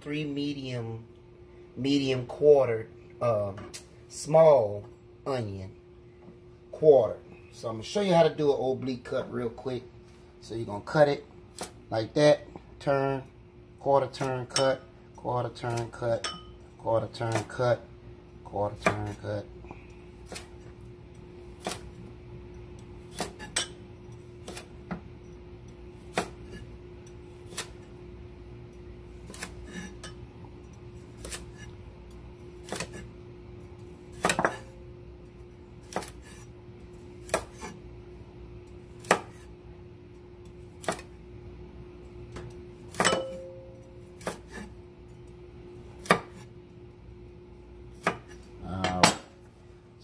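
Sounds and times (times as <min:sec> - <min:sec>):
faint steady hum: 0:00.0 - 0:50.0
knife chopping on wooden board: 0:18.8 - 0:19.2, 0:23.1 - 0:23.7, 0:24.4 - 0:25.0, 0:26.1 - 0:26.6, 0:27.5 - 0:27.9, 0:29.2 - 0:30.0, 0:31.1 - 0:31.7, 0:32.6 - 0:33.1, 0:34.1 - 0:34.7, 0:35.8 - 0:36.5, 0:37.2 - 0:37.8, 0:39.0 - 0:39.5, 0:40.8 - 0:41.1, 0:42.3 - 0:43.5, 0:44.2 - 0:44.7, 0:46.0 - 0:46.5, 0:48.0 - 0:49.4.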